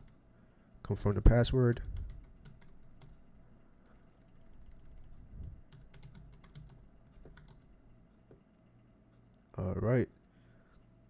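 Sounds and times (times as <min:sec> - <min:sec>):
computer keyboard keystrokes: 0:00.0 - 0:00.2, 0:01.7 - 0:07.7.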